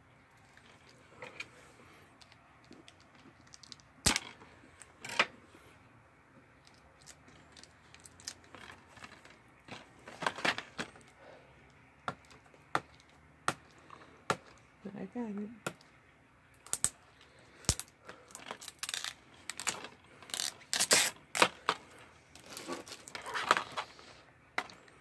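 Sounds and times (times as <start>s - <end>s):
plastic clicking and scraping: 17.6s - 24.0s.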